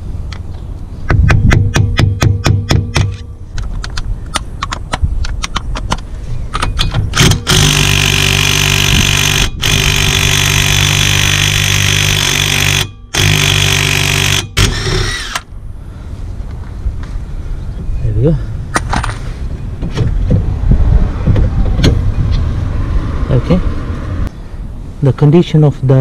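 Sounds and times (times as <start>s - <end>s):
impact wrench hammering: 1.1s - 3.3s, 6.8s - 15.4s.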